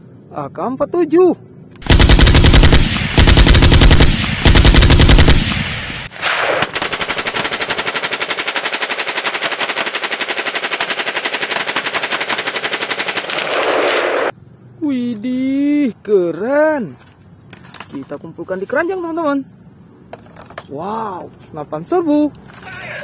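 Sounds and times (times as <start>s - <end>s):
automatic gunfire: 1.8s - 14.3s.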